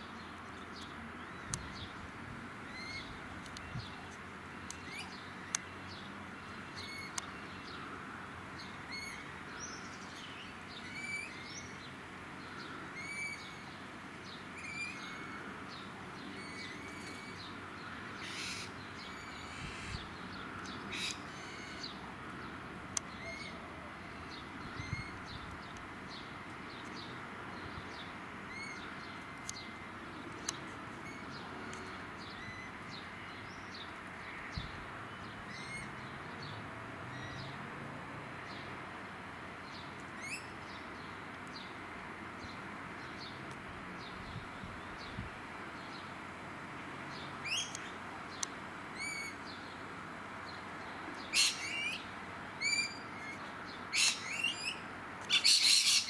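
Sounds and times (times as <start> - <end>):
parrots calling: 51.3 - 52.0, 53.9 - 54.7, 55.3 - 56.0.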